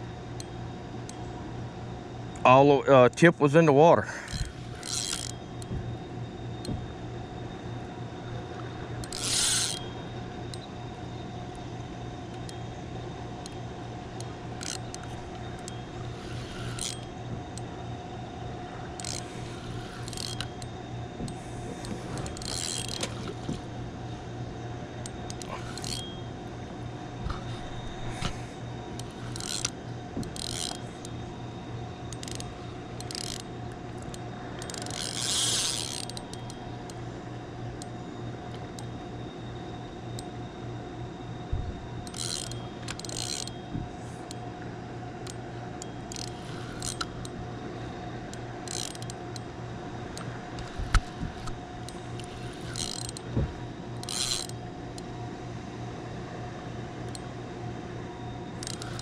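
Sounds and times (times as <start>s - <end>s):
fishing reel gears whirring: 0.0s - 55.3s, 58.2s - 59.0s
reel line hissing or clicking: 4.3s - 5.7s, 8.6s - 10.0s, 13.4s - 18.0s, 18.8s - 23.7s, 25.1s - 26.4s, 27.3s - 31.2s, 32.1s - 36.9s, 42.0s - 44.4s, 45.2s - 47.4s, 48.3s - 49.5s, 50.1s - 55.1s, 58.6s - 59.0s.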